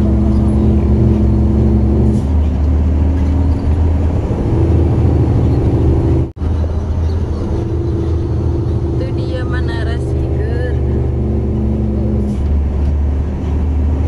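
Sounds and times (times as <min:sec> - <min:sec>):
truck engine drone: 0:00.0 - 0:14.0.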